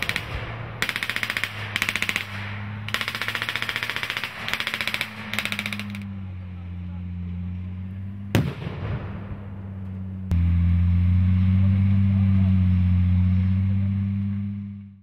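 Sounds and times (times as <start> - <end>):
half-track engine droning: 0.0 - 15.0
explosion tail: 8.3 - 9.7.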